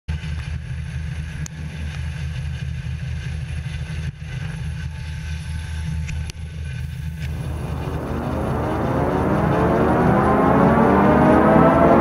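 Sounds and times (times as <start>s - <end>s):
helicopter hovering overhead: 0.6s - 12.0s
boat engines running: 6.3s - 12.0s.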